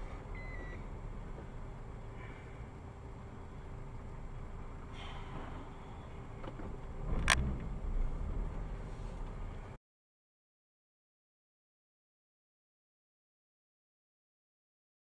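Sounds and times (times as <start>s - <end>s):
car road and engine noise: 0.0s - 9.8s
low rumble: 0.0s - 9.8s.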